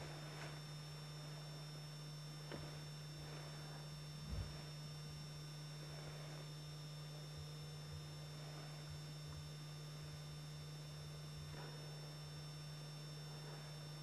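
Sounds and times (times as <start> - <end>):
thin high whines: 0.0 - 9.1, 10.8 - 14.0
low electrical hum: 0.0 - 14.0
soft low thump: 4.2 - 4.7.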